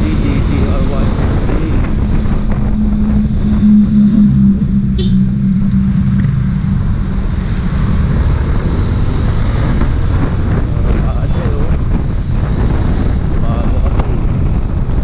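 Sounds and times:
scooter engine hum: 0:00.0 - 0:10.6
wind rumble on microphone: 0:00.0 - 0:15.0.

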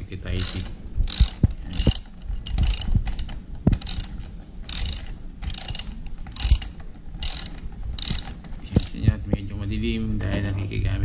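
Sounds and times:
ratchet wrench clicking: 0:00.4 - 0:09.1.

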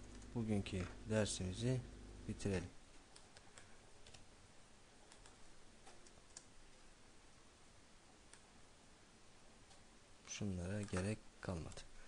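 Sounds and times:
keyboard and mouse clicks: 0:03.1 - 0:04.3, 0:05.1 - 0:06.5.

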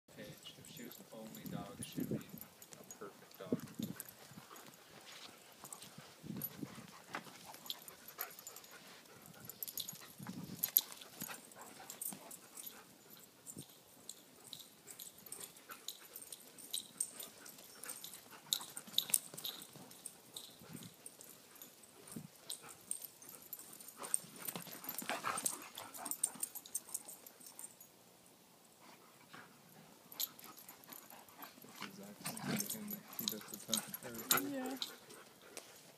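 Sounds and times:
dogs scuffling: 0:14.5 - 0:27.5, 0:30.2 - 0:35.9.

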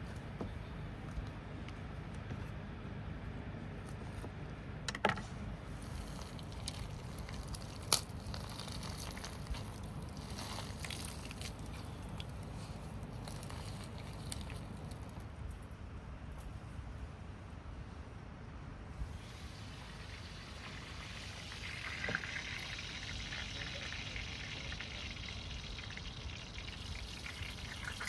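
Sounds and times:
knife crunching through fruit: 0:05.8 - 0:15.2
seeds pattering onto plate: 0:05.8 - 0:15.2.

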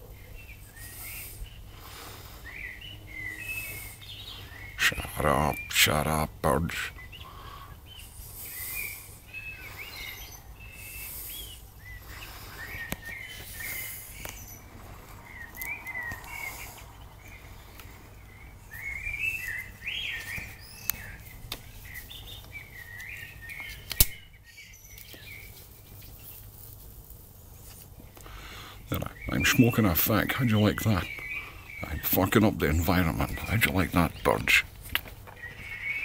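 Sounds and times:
songbirds singing: 0:00.0 - 0:36.0
sharp click: 0:23.8 - 0:24.2.

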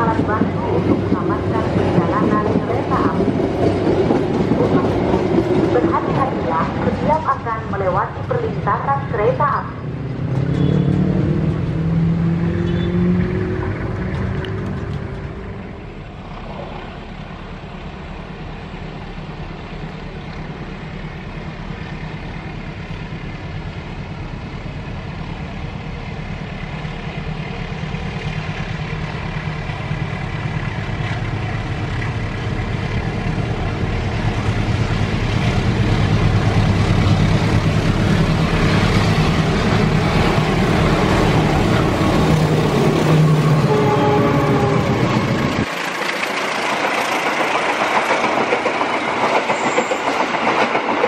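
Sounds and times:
locomotive engine drone: 0:00.0 - 0:50.4
train wheels on rails: 0:00.0 - 0:51.0.

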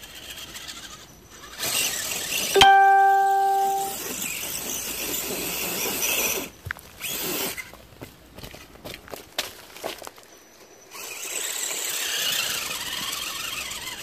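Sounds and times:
rc car motor whining: 0:00.0 - 0:02.4, 0:11.0 - 0:14.0
brief steady tone: 0:02.6 - 0:03.9.

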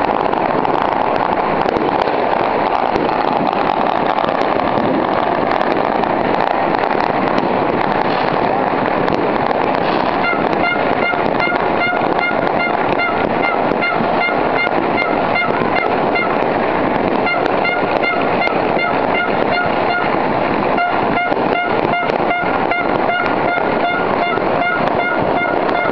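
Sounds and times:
firecrackers and fireworks crackling: 0:00.0 - 0:25.9
horn honking in rapid pulses: 0:10.2 - 0:16.4, 0:17.2 - 0:25.9.

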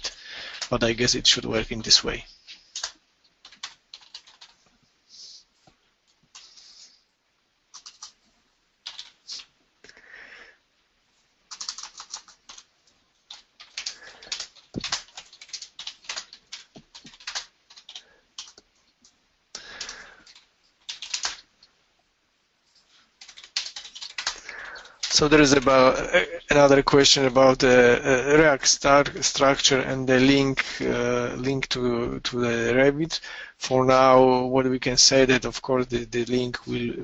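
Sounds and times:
typing on computer keyboard: 0:02.7 - 0:04.6, 0:07.7 - 0:08.2, 0:08.8 - 0:09.5, 0:11.5 - 0:18.6, 0:19.6 - 0:21.5, 0:23.2 - 0:25.7.

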